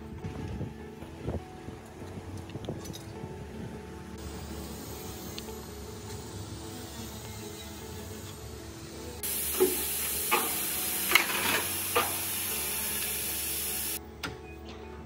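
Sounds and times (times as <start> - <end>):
steady air hiss: 4.2 - 14.0.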